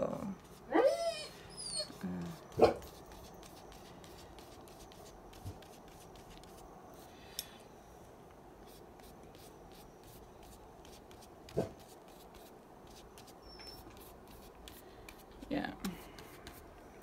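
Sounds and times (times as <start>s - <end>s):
pencil scribbling on paper: 1.9s - 6.6s, 8.7s - 15.2s, 16.2s - 16.6s.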